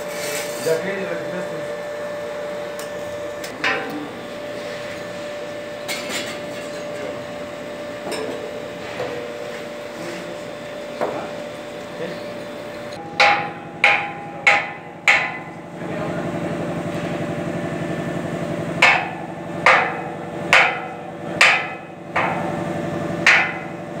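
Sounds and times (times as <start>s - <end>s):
steady hum: 0.0s - 24.0s
sledgehammer striking steel rail: 13.0s - 15.6s, 18.8s - 22.6s, 23.2s - 23.8s.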